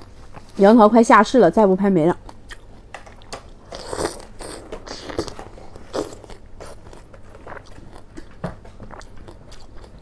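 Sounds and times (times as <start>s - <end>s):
person biting and chewing fruit: 2.2s - 10.0s.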